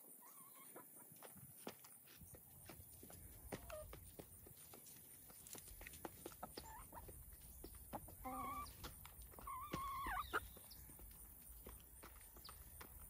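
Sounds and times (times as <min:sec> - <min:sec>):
hens pecking feed from a pan: 0:00.6 - 0:13.0.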